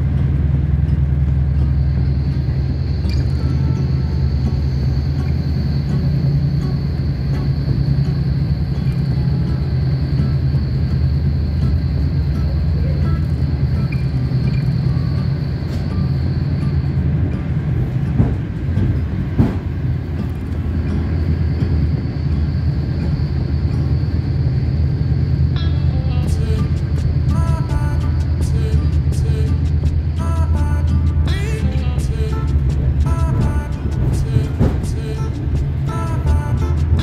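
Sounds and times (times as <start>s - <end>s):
thin high whine: 0.0s - 37.0s
train rumble: 0.0s - 37.0s
sharp knocks: 18.2s - 19.7s.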